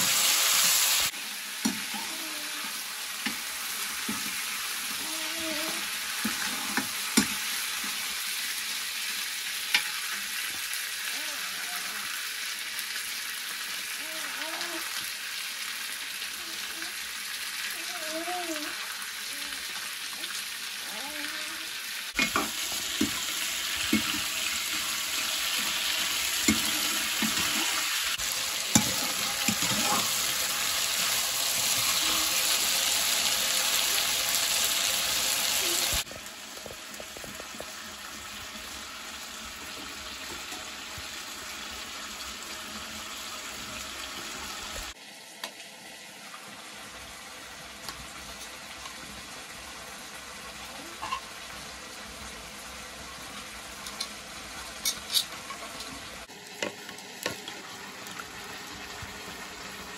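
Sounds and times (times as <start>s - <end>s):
food sizzling in oil: 0.0s - 59.9s.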